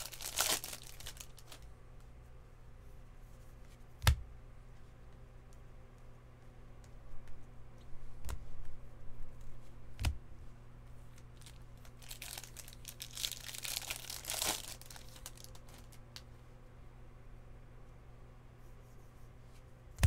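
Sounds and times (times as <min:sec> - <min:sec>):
foil wrapper crinkling and tearing: 0:00.0 - 0:01.6, 0:11.4 - 0:16.0.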